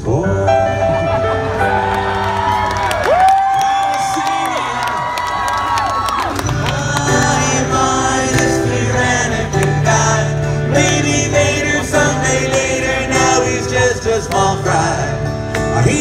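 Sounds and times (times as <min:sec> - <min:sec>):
person singing: 0:06.3 - 0:16.0
live rock band playing: 0:06.4 - 0:16.0.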